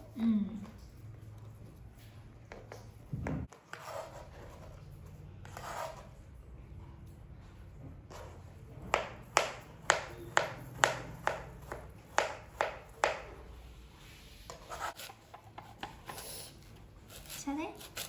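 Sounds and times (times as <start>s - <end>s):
knife chopping on plastic board: 8.9s - 13.4s.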